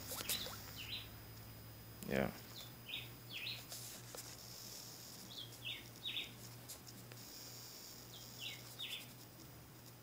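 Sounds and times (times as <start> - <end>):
steady low hum: 0.0 - 10.0
faint bird chirps: 0.1 - 1.2, 2.5 - 3.7, 5.3 - 6.4, 8.1 - 9.2.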